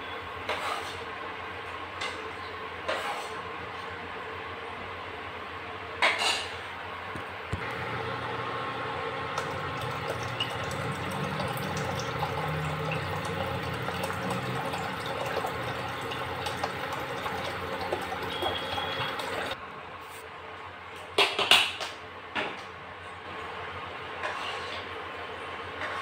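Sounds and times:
boiling lentils bubbling: 0:07.5 - 0:19.6
water pouring into a saucepan: 0:07.6 - 0:19.6.

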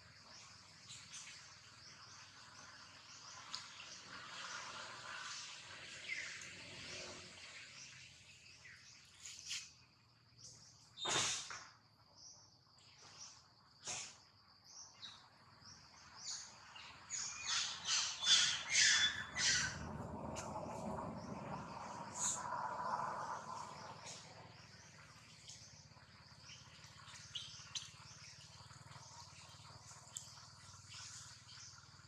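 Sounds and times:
high-pitched animal chirps: 0:17.9 - 0:19.8.

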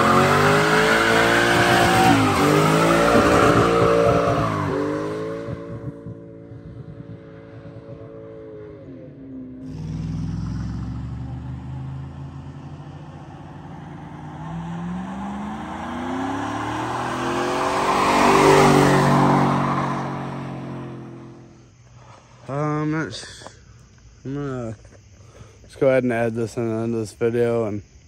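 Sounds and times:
car engine revving high: 0:00.0 - 0:21.6
pickup truck engine revving: 0:00.0 - 0:21.6.

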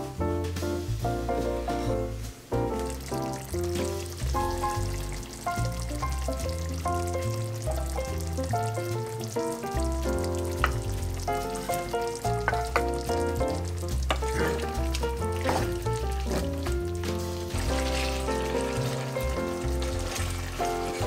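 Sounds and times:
instrumental music with bass line: 0:00.0 - 0:21.0
stew simmering and sizzling: 0:00.0 - 0:21.0
wooden spoon scraping a pan: 0:11.4 - 0:21.0.

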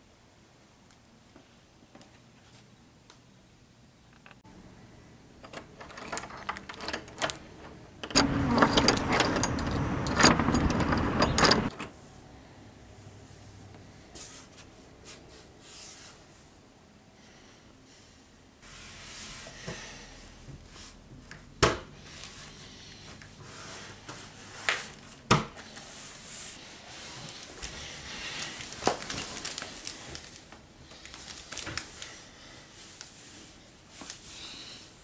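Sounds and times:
rustling of person moving: 0:00.9 - 0:02.9, 0:13.1 - 0:16.7, 0:18.6 - 0:35.0.

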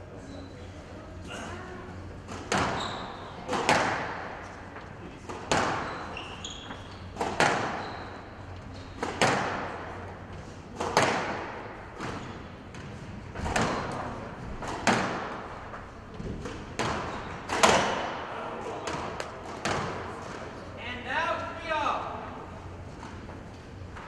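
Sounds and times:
ball hitting court walls: 0:02.3 - 0:04.4, 0:05.3 - 0:08.0, 0:09.0 - 0:09.9, 0:10.7 - 0:20.5
racket striking squash ball: 0:02.3 - 0:04.4, 0:05.2 - 0:08.1, 0:08.8 - 0:09.9, 0:10.7 - 0:20.6.

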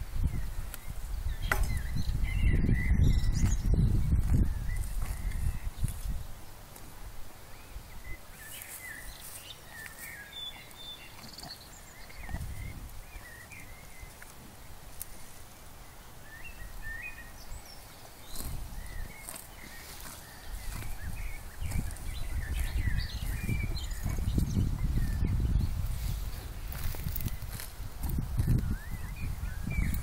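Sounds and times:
small birds chirping: 0:00.0 - 0:30.0
cattle tearing grass: 0:04.1 - 0:06.9, 0:17.9 - 0:25.0, 0:25.8 - 0:28.7.

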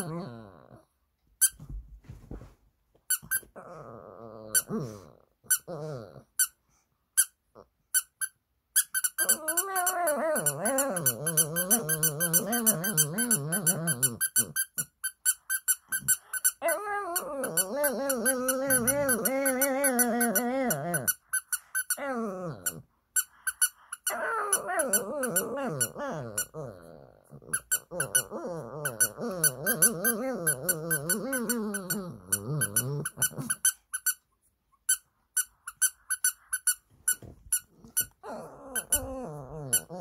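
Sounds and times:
squeaky toy squeaking: 0:03.1 - 0:03.6, 0:07.2 - 0:26.6, 0:27.5 - 0:34.3, 0:34.9 - 0:40.0.

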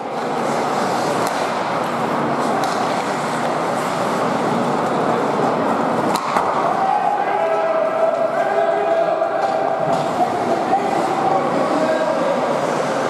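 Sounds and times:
crowd murmur: 0:00.0 - 0:13.0
skates on ice: 0:00.1 - 0:05.4
sharp crack: 0:06.1 - 0:06.6.

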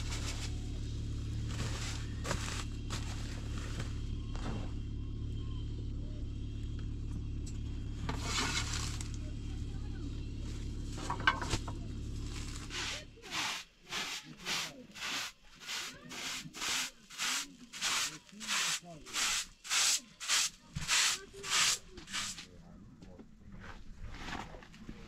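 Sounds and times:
broom sweeping a plastic tarp: 0:00.0 - 0:00.6, 0:01.4 - 0:04.0, 0:08.2 - 0:09.1, 0:12.2 - 0:22.5.

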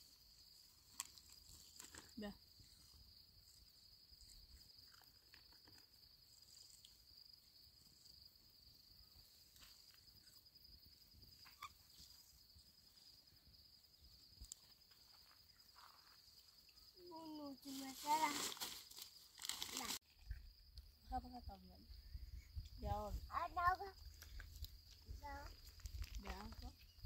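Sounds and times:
crickets trilling: 0:00.0 - 0:27.0.

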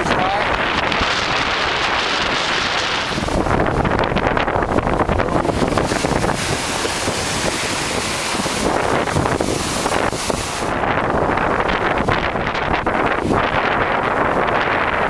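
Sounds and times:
seas rushing: 0:00.0 - 0:11.4
wind buffeting microphone: 0:00.0 - 0:15.0.

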